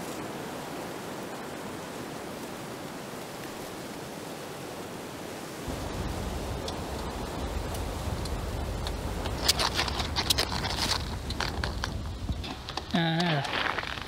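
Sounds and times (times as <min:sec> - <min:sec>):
rustling and clicking: 0:06.0 - 0:14.0.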